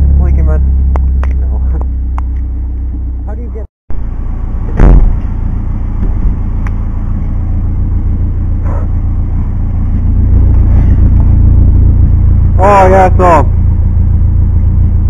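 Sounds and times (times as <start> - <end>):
car engine rumbling: 0.0 - 15.0
loud knock: 4.7 - 5.3.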